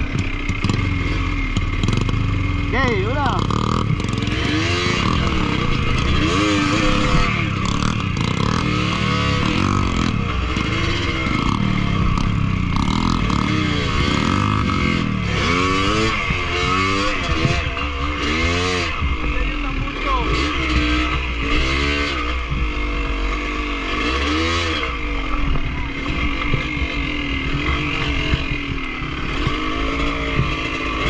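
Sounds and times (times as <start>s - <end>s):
dirt bike engine revving: 0.0s - 31.0s.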